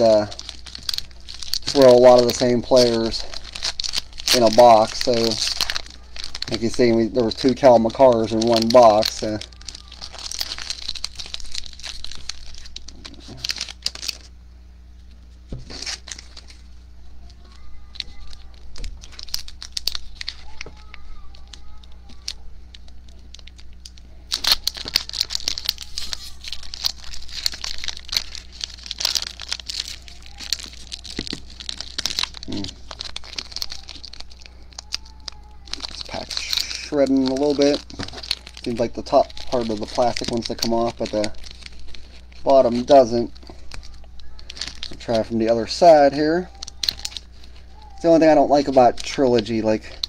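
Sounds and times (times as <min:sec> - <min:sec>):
plastic wrapper crinkling and tearing: 0:00.0 - 0:14.4, 0:15.0 - 0:50.0.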